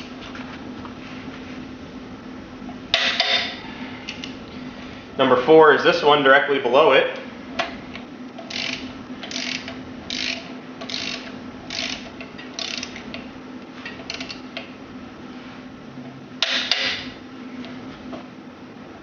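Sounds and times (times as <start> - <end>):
torque wrench ratcheting: 8.4 - 13.0, 14.0 - 14.4.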